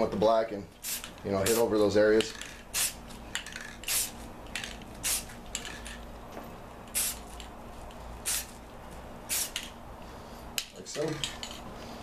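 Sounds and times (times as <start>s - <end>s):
spray paint can hissing: 0.8s - 1.7s, 2.3s - 5.4s, 6.9s - 7.5s, 8.2s - 8.6s, 9.3s - 9.7s.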